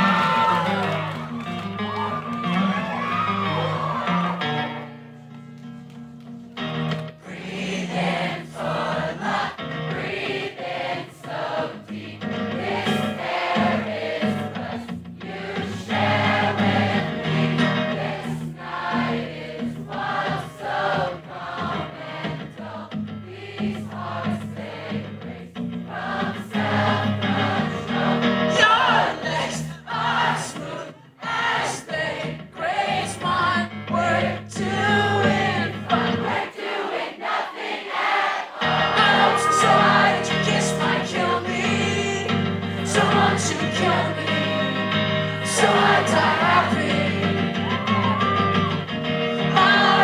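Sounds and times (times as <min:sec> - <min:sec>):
crowd singing along: 0:07.0 - 0:50.0
man singing lead vocal: 0:07.2 - 0:09.3, 0:28.5 - 0:31.0, 0:32.6 - 0:36.2, 0:38.7 - 0:47.5, 0:49.4 - 0:50.0
acoustic guitar strummed: 0:38.6 - 0:50.0.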